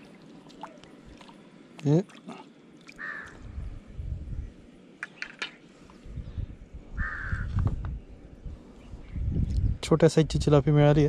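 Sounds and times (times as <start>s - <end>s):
crow cawing: 2.9s - 3.4s, 7.0s - 7.6s
low rumble: 3.4s - 4.7s.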